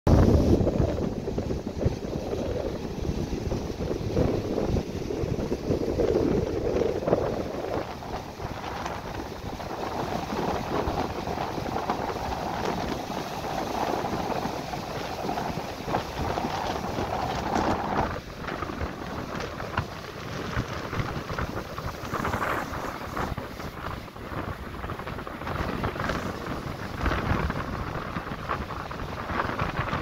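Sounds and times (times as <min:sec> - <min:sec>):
ocean surf breaking on beach: 0:00.1 - 0:30.0
wind buffeting microphone: 0:00.1 - 0:30.0.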